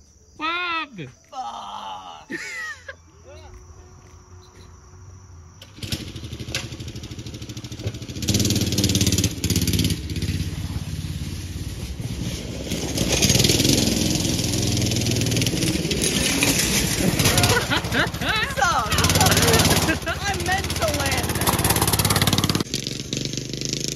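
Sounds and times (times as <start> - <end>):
go-kart engine revving: 5.6 - 23.9.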